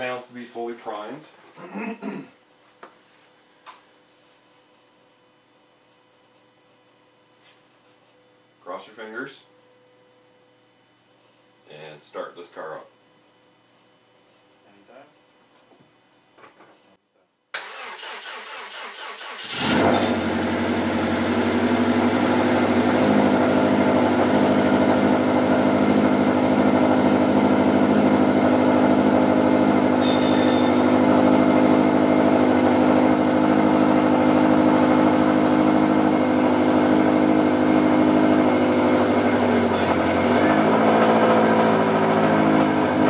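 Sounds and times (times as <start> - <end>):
car engine idling loudly: 19.5 - 43.0.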